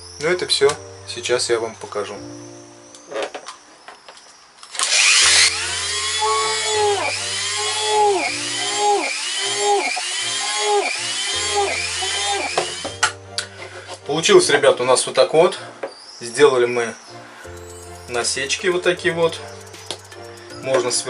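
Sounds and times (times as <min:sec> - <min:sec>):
rotary tool whine drilling plastic: 0:04.7 - 0:13.1.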